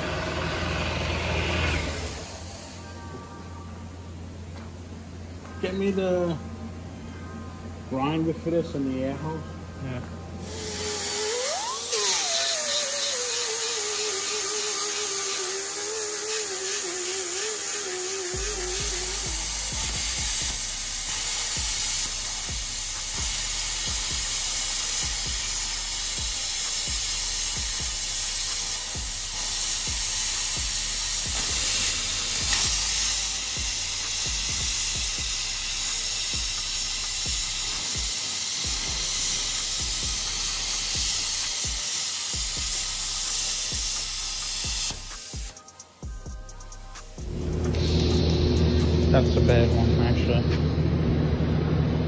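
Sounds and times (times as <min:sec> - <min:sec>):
plasma cutter arc hissing: 0:01.7 - 0:03.0, 0:10.4 - 0:46.0, 0:46.7 - 0:49.7.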